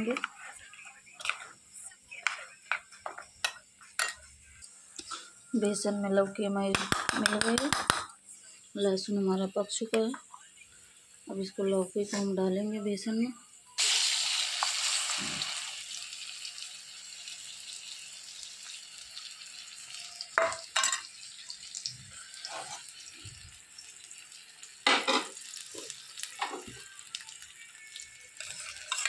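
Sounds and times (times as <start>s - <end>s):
food sizzling in hot oil: 6.7s - 29.0s
spoon clinking against pan: 20.4s - 21.1s.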